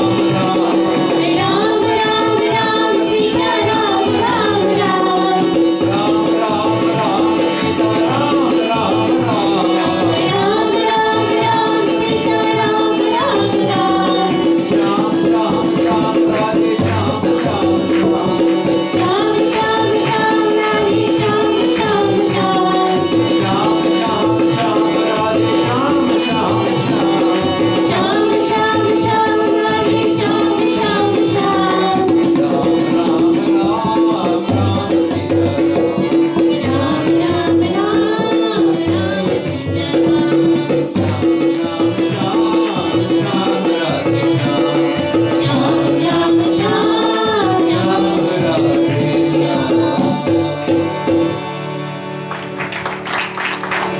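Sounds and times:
man singing: 0:00.0 - 0:01.7, 0:04.2 - 0:20.2, 0:20.9 - 0:51.3
hand drum: 0:00.0 - 0:53.9
harmonium drone: 0:00.0 - 0:53.9.

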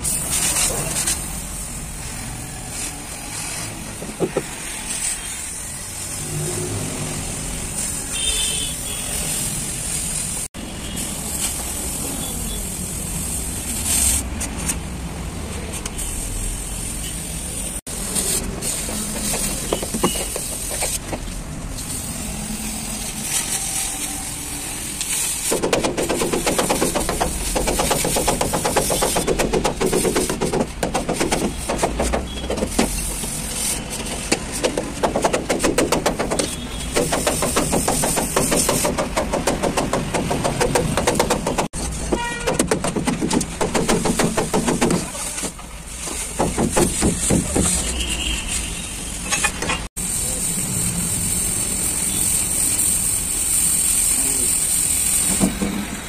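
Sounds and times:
metal crackling and spitting: 0:17.9 - 0:55.6
gas cutting torch hissing: 0:50.0 - 0:56.0.

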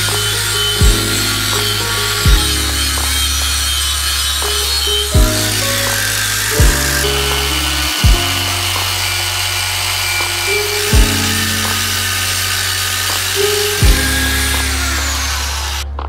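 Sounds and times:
lo-fi hip-hop music: 0:00.0 - 0:09.6, 0:13.4 - 0:16.0
kick drum thumps: 0:00.8 - 0:01.2, 0:02.2 - 0:02.5, 0:05.2 - 0:05.5, 0:06.6 - 0:06.8, 0:08.0 - 0:08.4, 0:10.9 - 0:11.2, 0:13.8 - 0:14.1.

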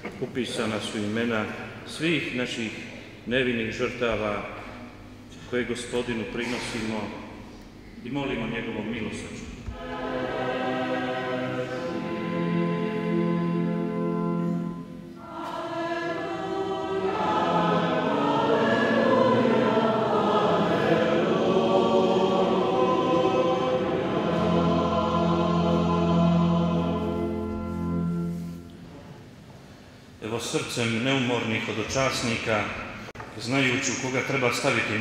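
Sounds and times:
church choir chanting: 0:08.1 - 0:29.2, 0:30.4 - 0:35.0.

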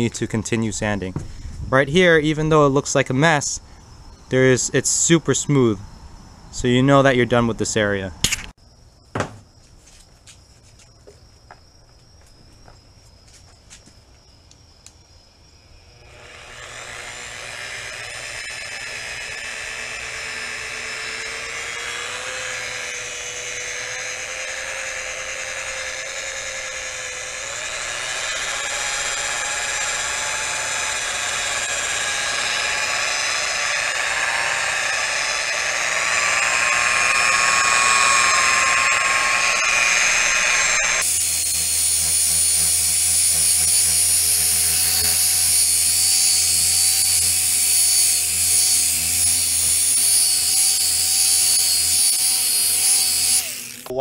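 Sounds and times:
rotary polisher motor whine: 0:15.8 - 0:53.9.

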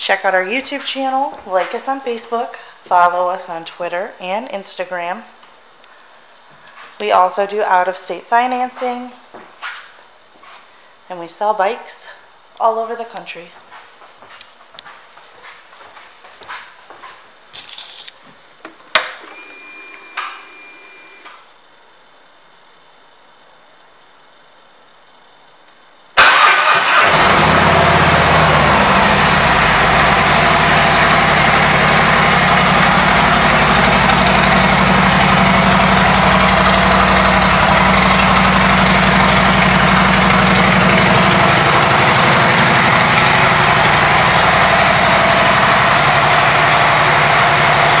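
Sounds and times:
motorcycle engine starting and idling: 0:26.2 - 0:48.0.

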